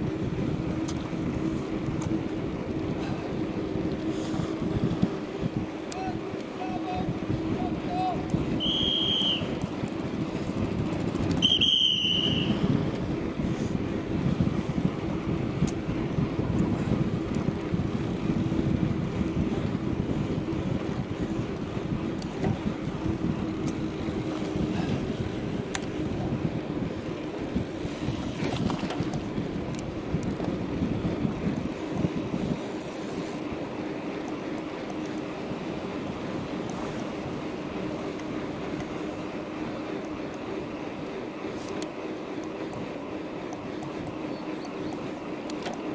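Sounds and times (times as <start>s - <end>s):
wind rushing over microphone: 0.0s - 33.8s
bicycle tyres on asphalt: 0.0s - 45.9s.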